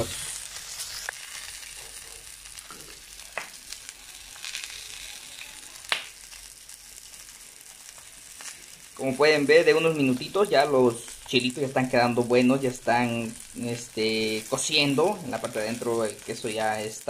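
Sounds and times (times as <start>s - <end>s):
food sizzling on a griddle: 0.0s - 17.0s
sharp pops of frying food: 0.0s - 17.0s.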